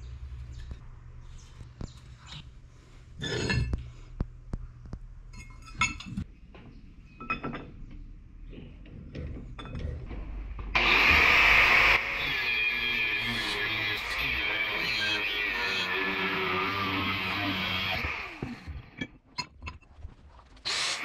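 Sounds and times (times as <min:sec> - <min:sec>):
metal plates clinking and scraping: 0:03.2 - 0:03.8, 0:05.3 - 0:06.3
angle grinder on steel: 0:10.8 - 0:19.0.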